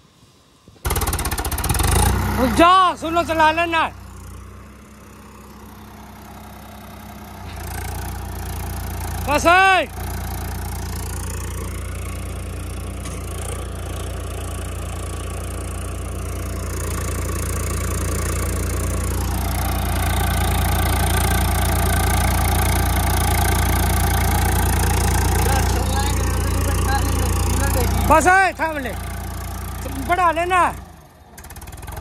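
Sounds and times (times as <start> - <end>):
tractor diesel engine running: 0.8 - 32.0.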